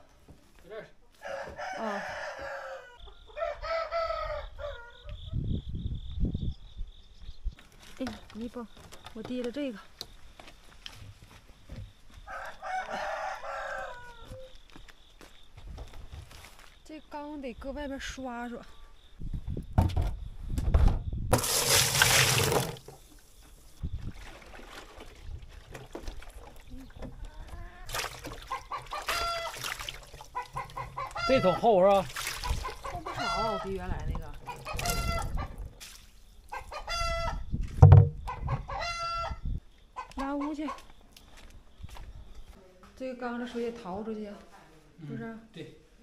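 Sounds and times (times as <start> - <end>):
rooster crowing: 1.2 - 5.3, 12.2 - 14.6, 28.5 - 29.6, 30.4 - 31.8, 32.7 - 33.8, 34.5 - 35.5, 36.6 - 37.4, 38.3 - 39.4
water pouring into plastic vat: 21.3 - 23.1, 24.0 - 26.6, 27.8 - 30.9, 31.9 - 33.0
water sloshing in vat: 21.3 - 23.3, 23.9 - 36.6
small knocks inside vat: 24.4 - 31.1, 33.9 - 36.0, 37.6 - 38.6.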